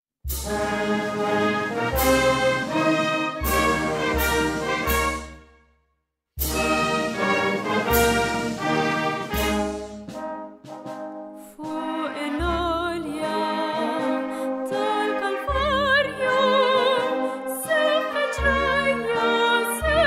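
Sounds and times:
wind band playing a hymn: 0:00.3 - 0:05.4, 0:06.4 - 0:20.0
woman singing with vibrato: 0:11.6 - 0:20.0.

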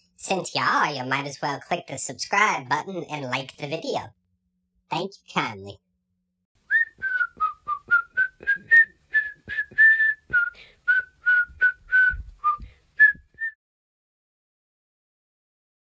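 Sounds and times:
person whistling a tune: 0:06.7 - 0:13.6.

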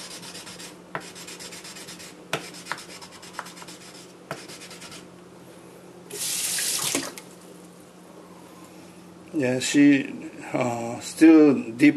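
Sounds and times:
water tap running: 0:06.1 - 0:07.2.

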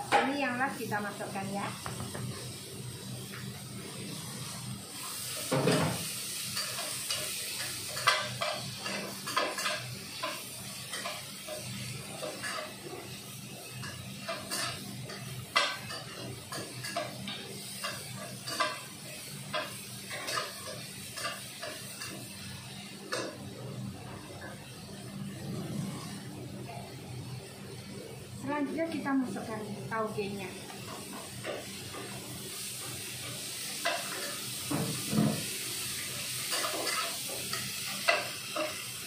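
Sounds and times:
food sizzling: 0:00.0 - 0:39.0
spatula scraping a wok: 0:36.3 - 0:39.0.

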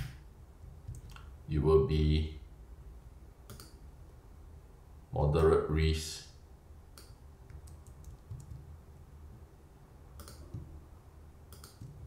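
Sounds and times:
faint low hum: 0:00.0 - 0:12.0
keyboard and mouse clicks: 0:00.8 - 0:01.3, 0:03.5 - 0:03.8, 0:07.0 - 0:08.7, 0:10.2 - 0:10.7, 0:11.5 - 0:12.0.

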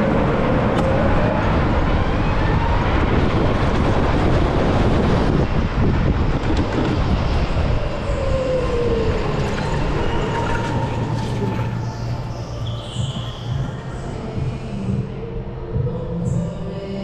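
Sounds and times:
go-kart rolling rumble: 0:00.0 - 0:13.0.

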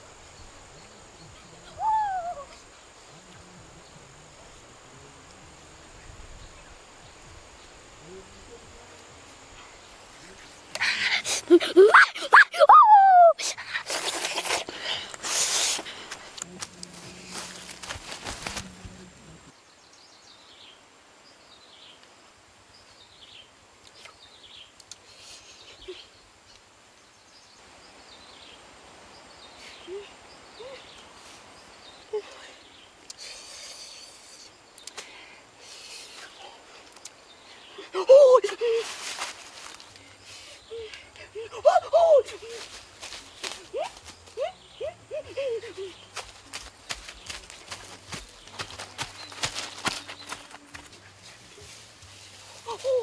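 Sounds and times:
faint hiss: 0:00.0 - 0:12.3, 0:13.0 - 0:53.0
insects droning: 0:00.0 - 0:53.0
birds chirping: 0:39.4 - 0:53.0.

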